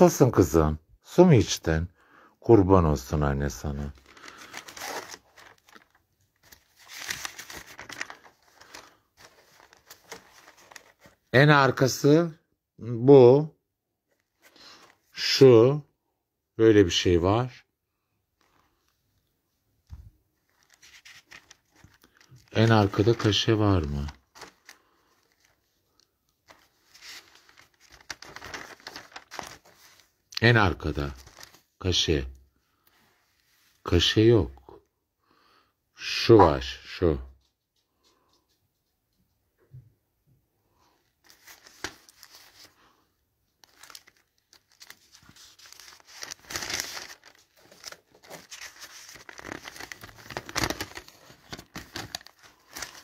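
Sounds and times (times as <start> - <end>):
paper pages rustling: 3.4 - 11.3, 14.1 - 15.3, 19.9 - 31.8, 40.8 - 53.0.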